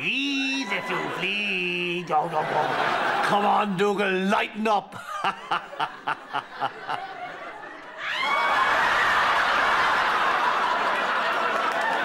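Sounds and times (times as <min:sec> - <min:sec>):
audience laughter: 0:00.6 - 0:03.9, 0:05.0 - 0:08.0, 0:09.1 - 0:12.0.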